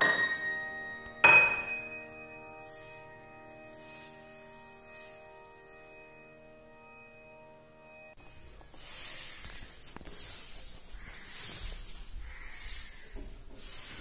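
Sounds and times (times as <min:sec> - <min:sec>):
held music chord: 0:00.0 - 0:08.5.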